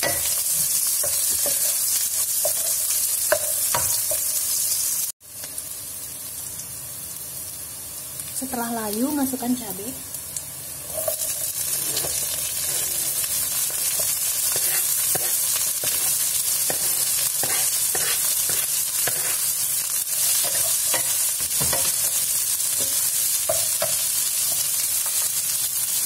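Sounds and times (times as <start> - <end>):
frying sizzle in a wok: 0.0 - 26.0
spatula scraping and knocking pan: 10.9 - 19.5, 20.3 - 22.2.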